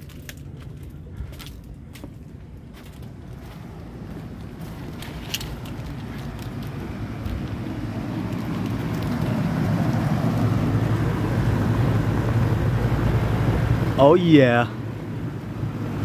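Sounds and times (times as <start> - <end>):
air conditioner unit humming: 0.0 - 16.0.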